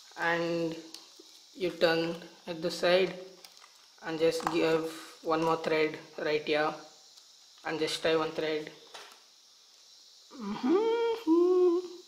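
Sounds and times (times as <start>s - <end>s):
man humming: 10.3s - 12.0s.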